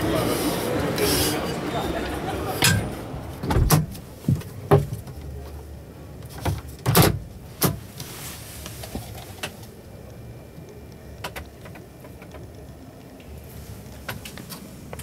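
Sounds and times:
busy hall background noise: 0:00.0 - 0:06.4.

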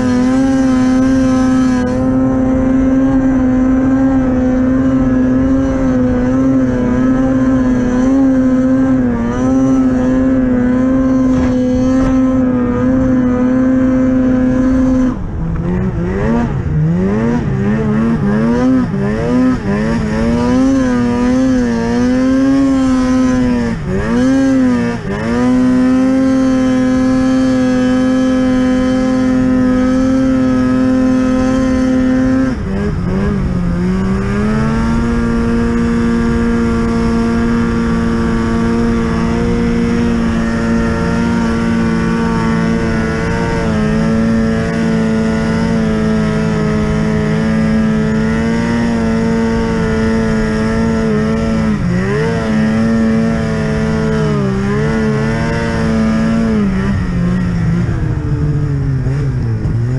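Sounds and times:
snowmobile engine revving: 0:00.0 - 0:59.9.

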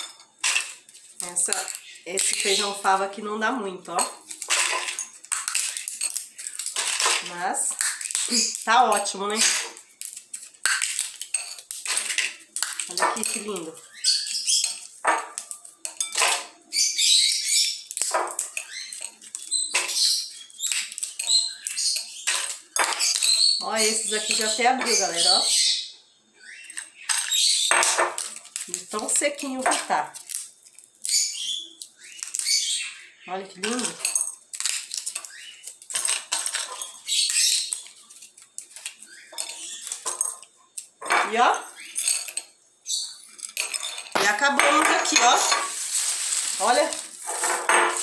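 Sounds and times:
seeds clicking onto ceramic plate: 0:00.4 - 0:03.0, 0:03.9 - 0:16.4, 0:17.2 - 0:25.2, 0:26.7 - 0:32.6, 0:33.6 - 0:42.1
papery crackling of bean pods: 0:00.4 - 0:25.5, 0:26.6 - 0:42.0, 0:43.2 - 0:48.0
beans clicking onto ceramic plate: 0:03.9 - 0:16.4, 0:17.7 - 0:23.4
dry bean pods snapping: 0:04.3 - 0:13.8, 0:27.2 - 0:32.6.

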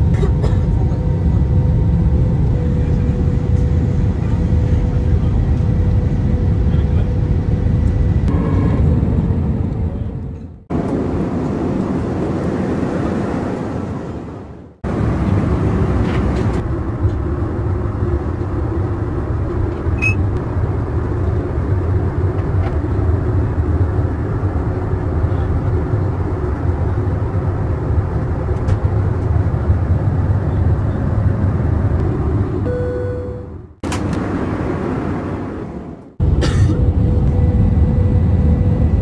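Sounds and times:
airplane cabin roar: 0:00.0 - 0:39.0.

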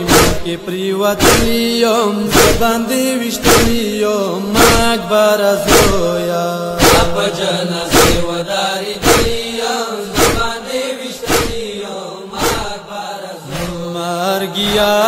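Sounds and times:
chest-beating slaps: 0:00.0 - 0:00.5, 0:01.2 - 0:01.6, 0:02.3 - 0:02.7, 0:03.4 - 0:03.8, 0:04.6 - 0:04.9, 0:05.7 - 0:06.1, 0:06.8 - 0:07.3, 0:07.9 - 0:08.4, 0:09.0 - 0:09.5, 0:10.1 - 0:10.6, 0:11.2 - 0:11.8, 0:12.4 - 0:12.8
person chanting a lament: 0:00.0 - 0:15.0.

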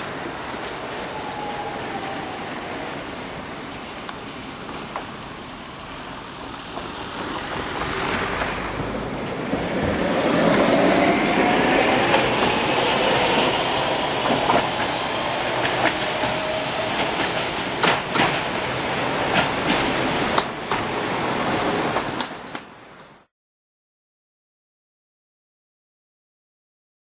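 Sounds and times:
tram wheels rumbling on track: 0:00.0 - 0:23.2
wheels clacking over rail joints: 0:06.7 - 0:23.2
tram motors whining: 0:08.8 - 0:19.4.

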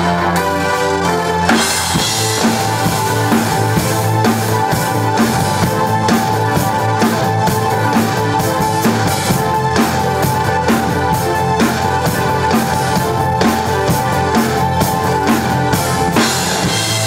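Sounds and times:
drum kit playing beat: 0:00.0 - 0:17.0
rock song: 0:00.0 - 0:17.0.

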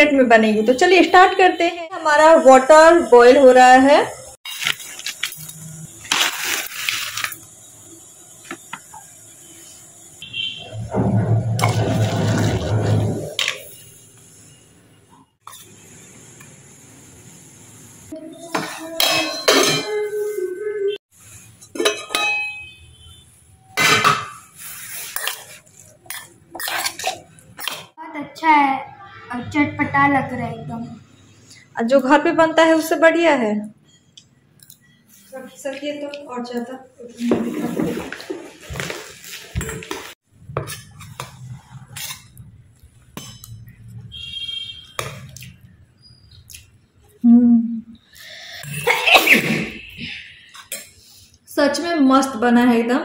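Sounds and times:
spoon clinking against steel bowl: 0:19.0 - 0:20.1, 0:21.7 - 0:22.8, 0:43.1 - 0:43.8
spoon scraping a steel bowl: 0:24.4 - 0:27.8, 0:40.6 - 0:42.4.

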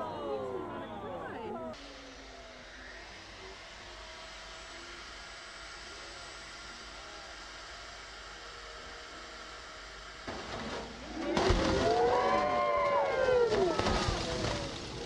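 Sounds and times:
onlookers crying out: 0:00.0 - 0:01.8, 0:11.1 - 0:15.0
heavy ice crashing and tumbling: 0:10.3 - 0:15.0.

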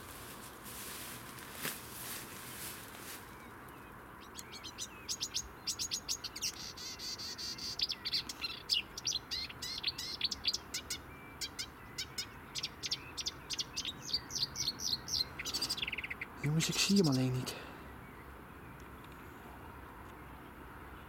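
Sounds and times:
songbird chirps and trills: 0:00.0 - 0:21.0.

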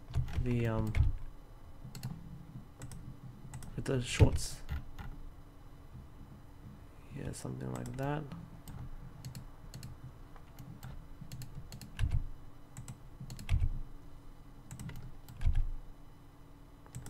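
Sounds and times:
keyboard and mouse clicks: 0:01.9 - 0:02.2, 0:02.8 - 0:05.2, 0:07.8 - 0:12.2, 0:12.8 - 0:13.8, 0:14.7 - 0:15.7.

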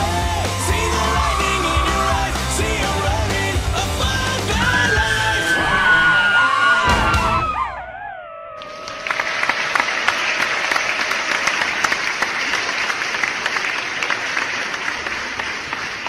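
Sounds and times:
crowd clapping: 0:08.6 - 0:16.0.

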